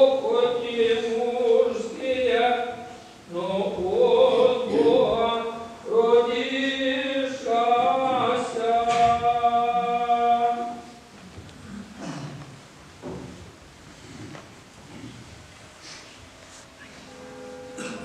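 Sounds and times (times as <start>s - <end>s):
choir chanting: 3.4s - 5.5s, 17.1s - 18.0s.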